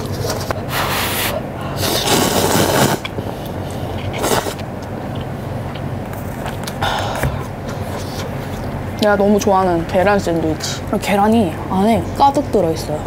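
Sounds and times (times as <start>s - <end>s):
person blowing on food: 0.7s - 3.1s
person slurping noodles: 0.7s - 4.6s.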